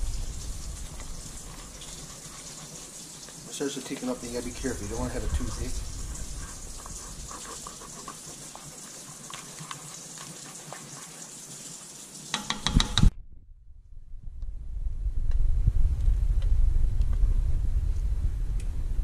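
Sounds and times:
gravy bubbling: 0:00.0 - 0:11.8
sharp knocks: 0:12.4 - 0:13.1.

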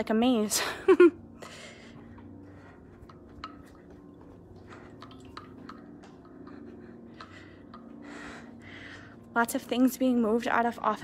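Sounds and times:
low steady hum: 0:00.0 - 0:11.0
footsteps tapping on tile: 0:02.0 - 0:08.0.

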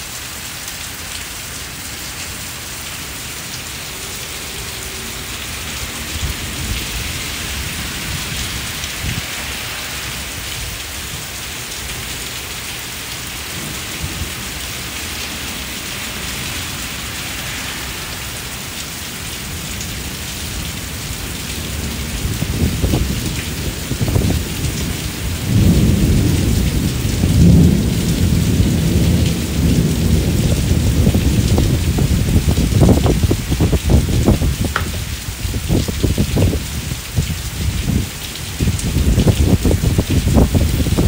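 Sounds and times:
heavy rain on brick patio: 0:00.0 - 0:41.0
low thunder rumbling: 0:21.6 - 0:41.0.

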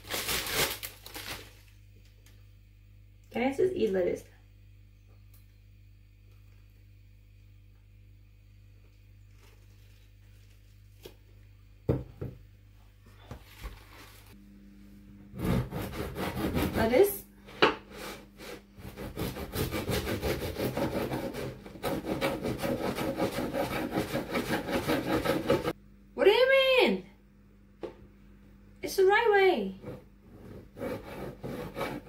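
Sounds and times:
knife sawing through crusty bread: 0:15.4 - 0:17.0, 0:17.9 - 0:25.7, 0:29.8 - 0:32.0.

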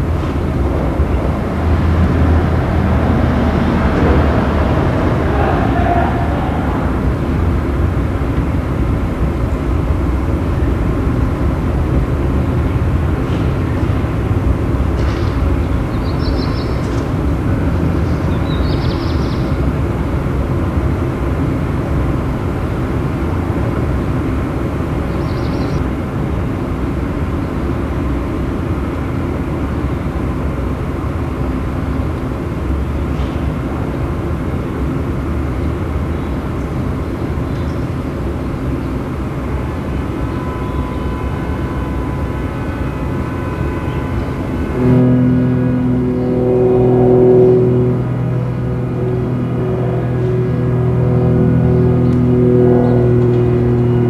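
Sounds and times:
low rumbling background noise: 0:00.0 - 0:54.0
sustained musical tones: 0:39.3 - 0:54.0.

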